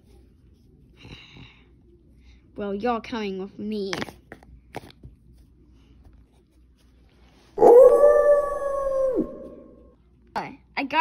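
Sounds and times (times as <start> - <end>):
child howling like a wolf: 7.6 - 9.9.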